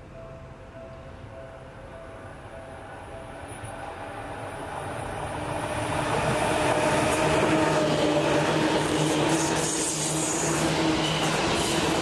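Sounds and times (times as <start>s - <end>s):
train wheels on rails: 3.4s - 12.0s.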